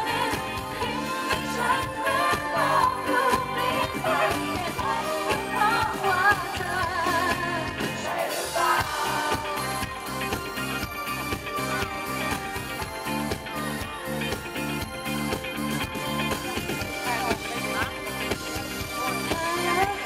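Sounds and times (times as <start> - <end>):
woman singing: 0.0 - 9.9, 19.1 - 20.0
live band playing: 0.0 - 20.0.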